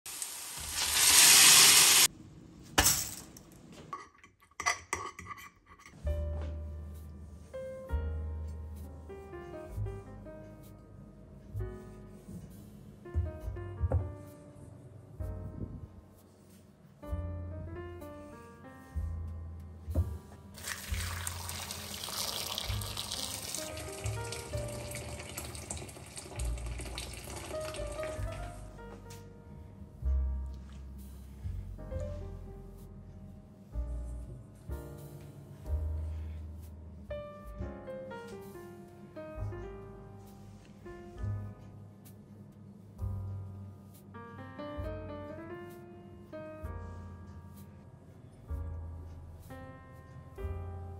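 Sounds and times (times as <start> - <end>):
vegetables sizzling in a pan: 0.1 - 2.1
fork clinking on a plate: 4.0 - 6.0
soft background music: 5.3 - 50.9
water pouring into glass bowl: 20.6 - 28.2.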